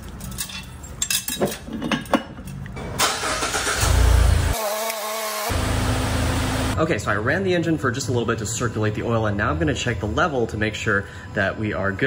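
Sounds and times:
car engine starting: 2.8s - 4.6s, 5.5s - 6.8s.

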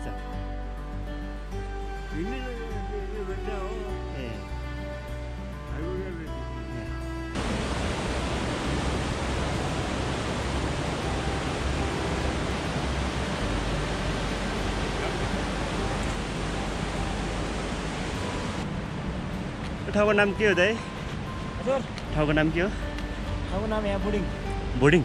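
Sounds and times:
background music: 0.0s - 25.0s
river rushing over rapids: 7.4s - 22.2s.

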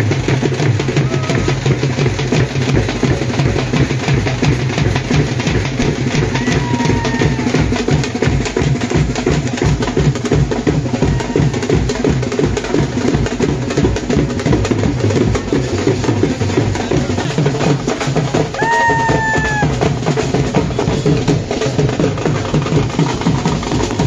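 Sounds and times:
drums playing dance rhythm: 0.0s - 24.0s
large bass drum: 0.0s - 24.0s.

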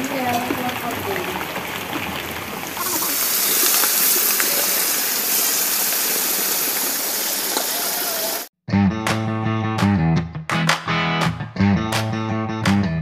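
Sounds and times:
rain falling: 0.0s - 8.5s
hot oil sizzling: 0.1s - 8.5s.

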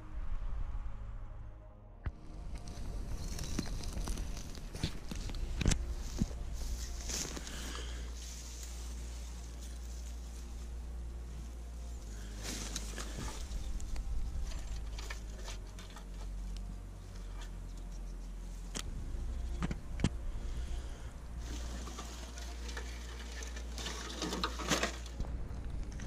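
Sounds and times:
low steady rumble: 0.0s - 26.0s
footsteps through dry leaves: 2.4s - 16.5s.

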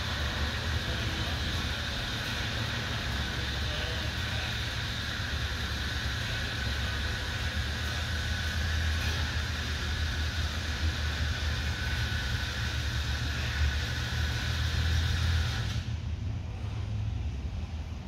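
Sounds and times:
motorized hangar door running: 0.0s - 17.4s.

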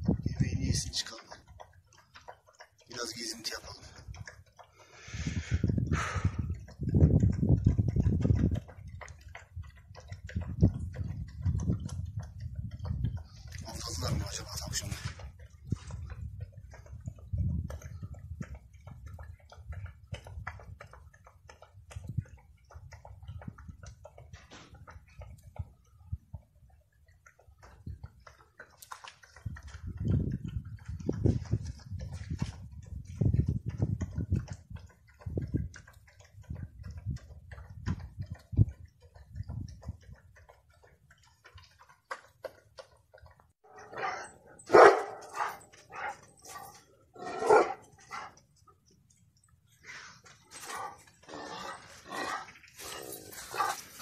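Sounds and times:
dog eating from bowl: 0.0s - 54.0s
dog crunching food: 50.6s - 54.0s.

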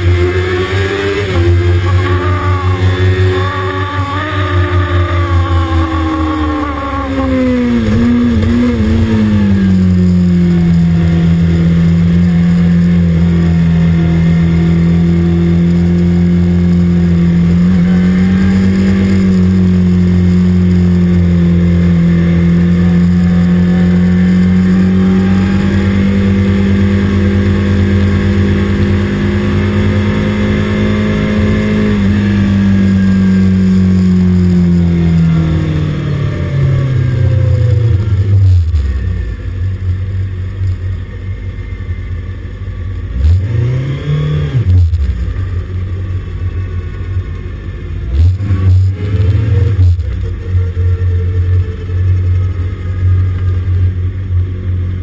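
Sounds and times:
motorcycle engine at low revs: 0.0s - 55.0s.

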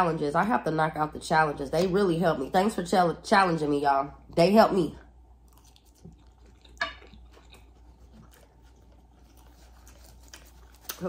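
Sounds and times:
person chewing food: 5.1s - 11.0s.

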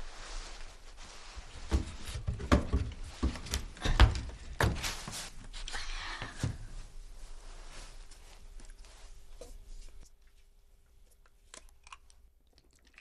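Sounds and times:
thumps on wooden floor: 1.7s - 4.9s.

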